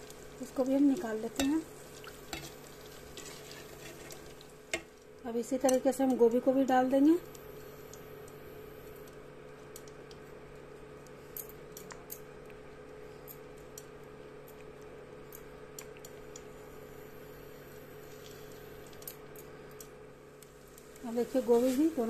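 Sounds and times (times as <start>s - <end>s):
frying oil crackling and popping: 0.0s - 10.3s
induction cooktop hum: 0.0s - 22.0s.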